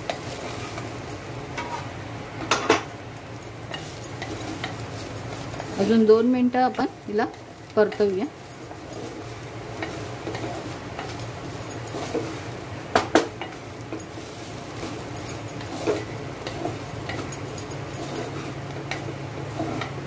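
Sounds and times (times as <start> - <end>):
spoon scraping a cooking pot: 13.3 - 19.9.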